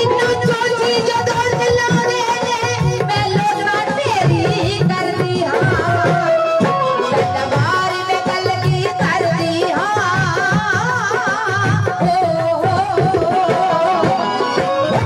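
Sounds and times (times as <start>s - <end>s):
keyboard melody: 13.2s - 15.0s.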